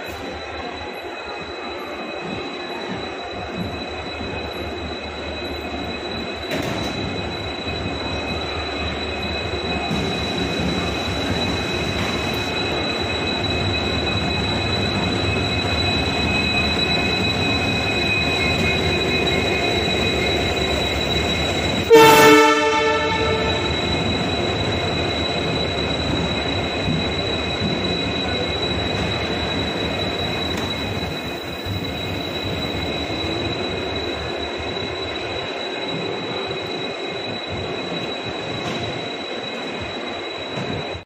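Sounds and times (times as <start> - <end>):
train rumbling with high whine: 0.0 - 41.0
train horn: 21.9 - 23.8.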